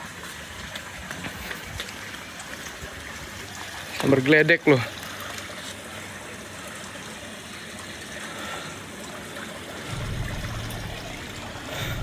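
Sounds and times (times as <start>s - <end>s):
low rumble: 9.9s - 12.0s
steady rushing noise: 9.9s - 12.0s.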